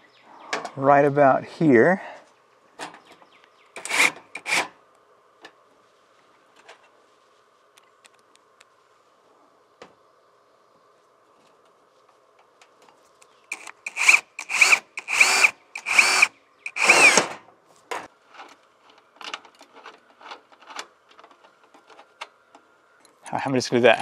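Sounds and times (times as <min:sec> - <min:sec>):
cordless drill whining: 0:03.8 - 0:04.6, 0:13.5 - 0:17.3.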